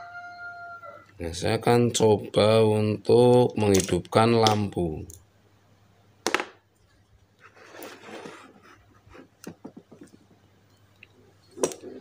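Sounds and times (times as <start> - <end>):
soft rustling: 6.9 - 10.4.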